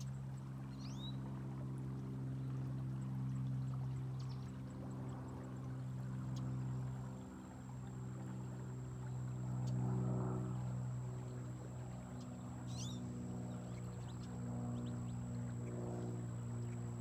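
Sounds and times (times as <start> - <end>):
motor humming: 12.2 - 17.0.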